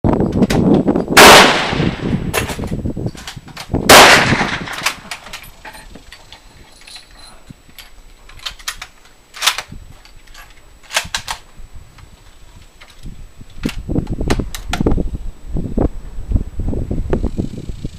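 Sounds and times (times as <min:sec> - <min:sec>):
rifle shots echoing: 0:01.2 - 0:02.5, 0:03.9 - 0:05.0
rifle actions clicking: 0:02.4 - 0:11.4.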